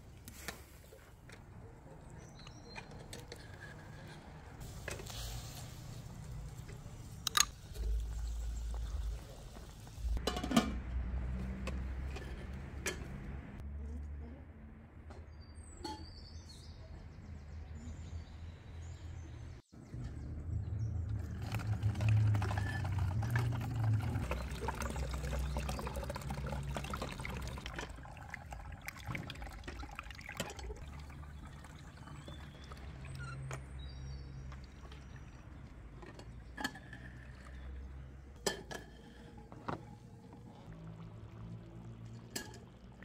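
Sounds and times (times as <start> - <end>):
juice pouring through a strainer: 21.1 - 33.0.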